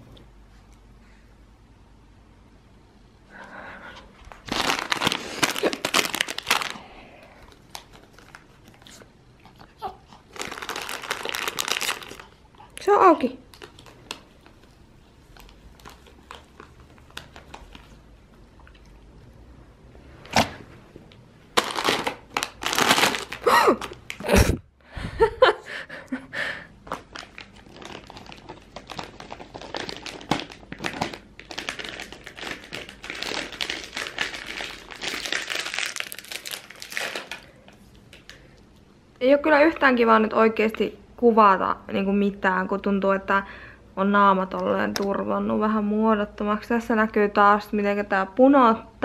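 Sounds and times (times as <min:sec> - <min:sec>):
plastic wrapper crinkling: 0:04.3 - 0:18.9, 0:21.5 - 0:24.3, 0:26.8 - 0:38.6.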